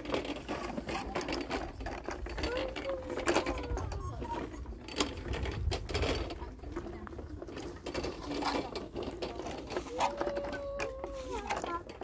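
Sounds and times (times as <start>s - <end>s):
plastic wheels rattling on concrete: 0.0s - 12.0s.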